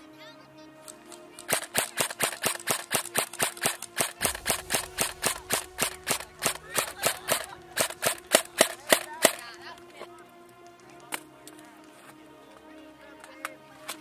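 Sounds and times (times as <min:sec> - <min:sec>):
airsoft gun shots: 0:01.5 - 0:09.4.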